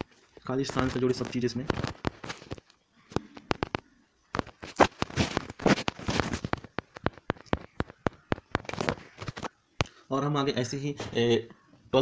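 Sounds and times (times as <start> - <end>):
rustling noise: 0.0 - 9.6
sharp clicks and crackles: 0.0 - 10.0.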